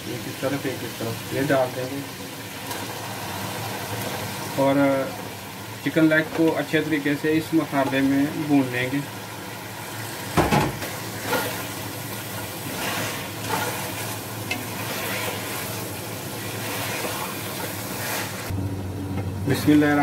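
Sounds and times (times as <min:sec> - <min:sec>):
meat sizzling in hot oil: 0:00.0 - 0:18.6
wooden spatula scraping pot: 0:11.2 - 0:18.5.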